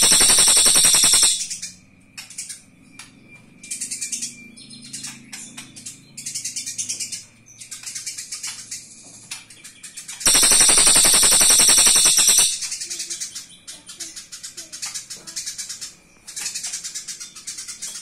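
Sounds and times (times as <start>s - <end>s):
loud distorted rapid rattle: 0.0s - 1.6s, 10.3s - 12.7s
sparrow chattering call: 0.0s - 1.7s, 10.3s - 17.0s.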